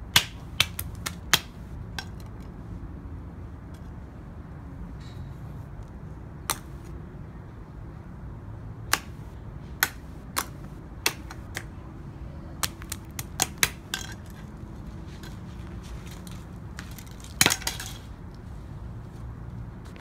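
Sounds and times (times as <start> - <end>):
knife chopping on pavement: 0.1 - 2.3, 6.5 - 6.9, 8.9 - 11.7, 12.6 - 14.5, 15.2 - 18.0.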